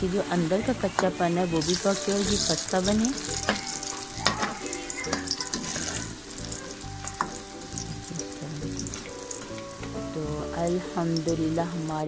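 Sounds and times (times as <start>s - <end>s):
fritters sizzling in hot oil: 0.0s - 12.0s
spoon knocking against pan: 3.3s - 6.0s, 7.0s - 7.5s.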